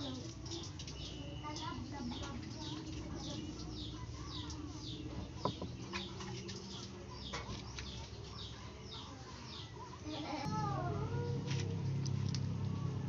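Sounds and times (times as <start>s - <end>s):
bird chirping: 0.4s - 9.9s
low steady hum: 10.4s - 13.0s.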